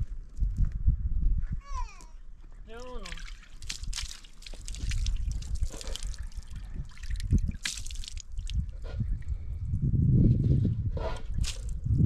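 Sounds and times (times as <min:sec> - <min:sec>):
water trickling over hands: 0:02.7 - 0:09.4
low rumble: 0:08.6 - 0:12.0.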